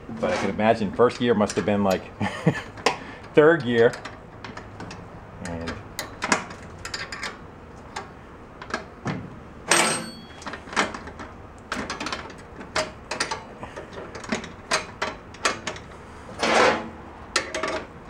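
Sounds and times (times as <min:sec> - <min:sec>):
wrench clinking on metal: 0:09.7 - 0:10.6.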